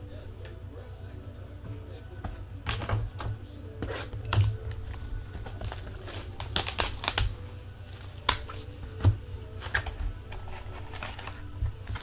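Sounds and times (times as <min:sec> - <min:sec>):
low steady hum: 0:00.0 - 0:12.0
cards and plastic cases clicking: 0:02.6 - 0:12.0.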